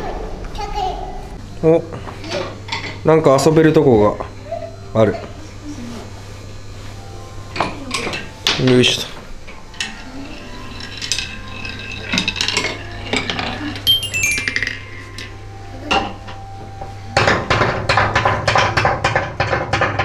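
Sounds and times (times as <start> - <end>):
falling bell-like notes: 13.9 - 16.6.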